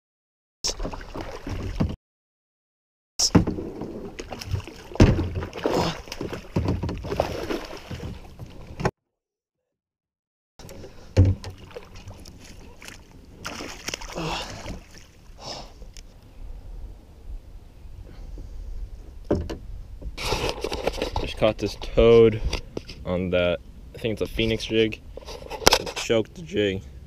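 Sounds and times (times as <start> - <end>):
water splashing: 0.7 - 2.0, 3.2 - 8.8, 10.6 - 15.4
knocks against kayak hull: 11.2 - 11.6.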